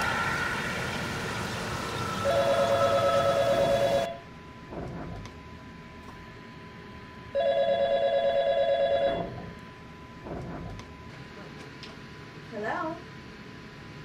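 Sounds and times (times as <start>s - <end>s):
telephone electronic warbling ring: 2.2s - 4.2s, 7.4s - 9.3s.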